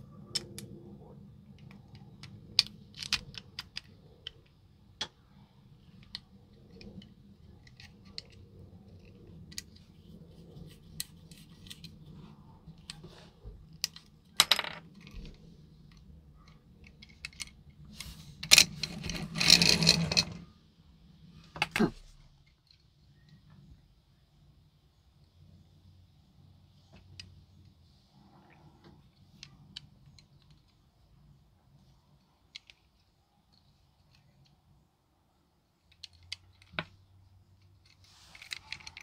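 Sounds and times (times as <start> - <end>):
toy car parts clicking: 1.5 - 10.2, 13.7 - 17.8, 18.4 - 20.4, 35.8 - 37.0, 37.6 - 39.0.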